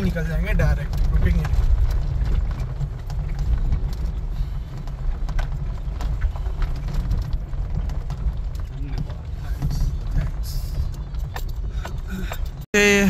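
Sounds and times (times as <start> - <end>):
stones knocking under car: 0.0 - 12.6
tyre rumble on gravel road: 0.0 - 12.7.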